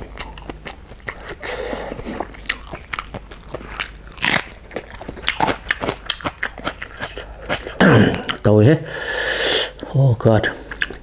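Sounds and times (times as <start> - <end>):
crisp crunching bites: 2.1 - 7.8.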